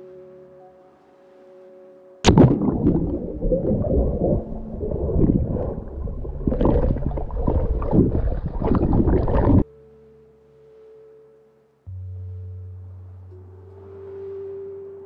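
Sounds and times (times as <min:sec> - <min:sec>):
muffled underwater churning: 0:02.3 - 0:09.6
splash into water: 0:02.3 - 0:09.6.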